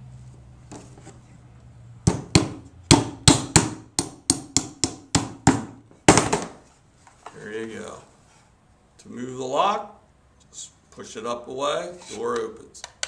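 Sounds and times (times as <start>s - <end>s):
hammer tapping nail into wood: 2.1s - 5.7s.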